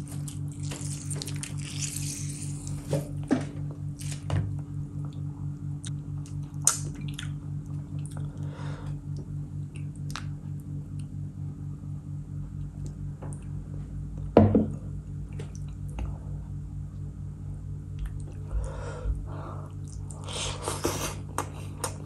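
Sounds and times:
wet squishing and dripping: 0.0s - 2.9s, 6.2s - 8.3s.

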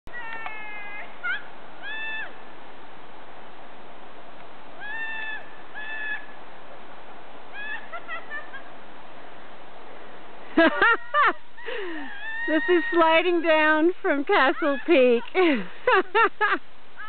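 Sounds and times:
women whooping and shrieking: 0.1s - 2.4s, 4.8s - 6.3s, 7.5s - 8.1s, 11.6s - 13.6s, 14.3s - 15.4s
steady hiss: 0.1s - 17.0s.

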